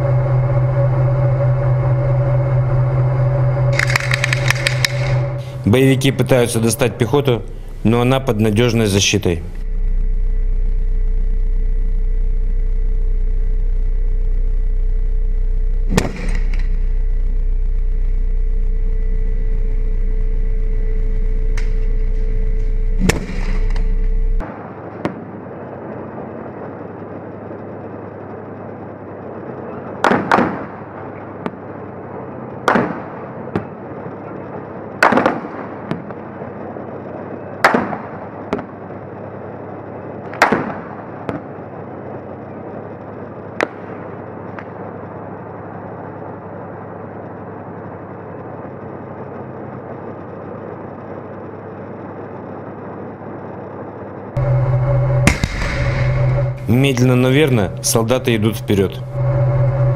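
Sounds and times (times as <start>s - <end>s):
tank engine rumble: 0.0s - 24.4s, 54.2s - 59.9s
loud steady hum: 0.0s - 59.9s.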